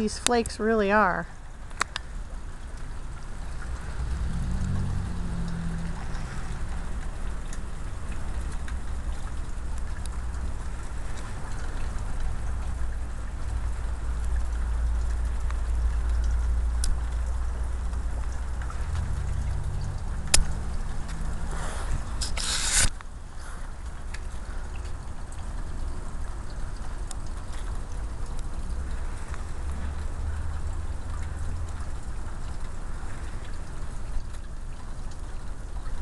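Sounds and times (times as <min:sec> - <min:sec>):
vehicle engine humming: 0:00.0 - 0:24.0
low rumble: 0:03.4 - 0:10.4.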